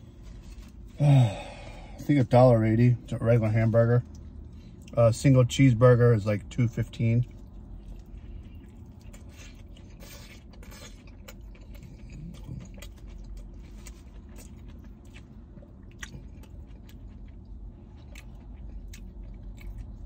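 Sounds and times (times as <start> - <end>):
person chewing food: 3.7 - 5.0, 6.9 - 20.0.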